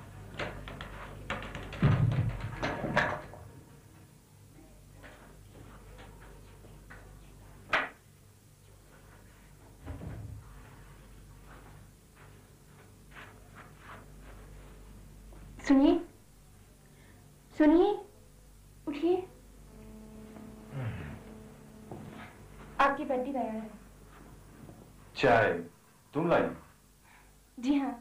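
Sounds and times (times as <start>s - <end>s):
faint low hum: 0.0s - 28.0s.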